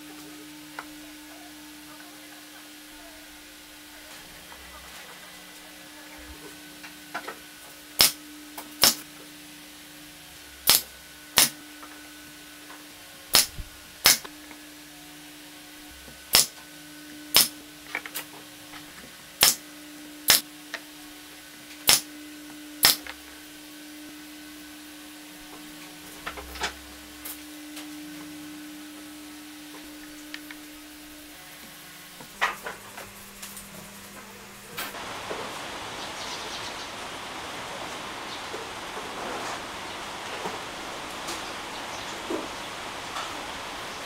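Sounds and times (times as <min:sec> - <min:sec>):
steady low hum: 0:00.0 - 0:44.0
pneumatic nailer firing into wood: 0:08.0 - 0:08.2, 0:08.8 - 0:09.0, 0:10.6 - 0:11.6, 0:13.3 - 0:14.3, 0:16.3 - 0:16.6, 0:17.3 - 0:17.6, 0:19.4 - 0:19.6, 0:21.8 - 0:22.1, 0:22.8 - 0:23.1.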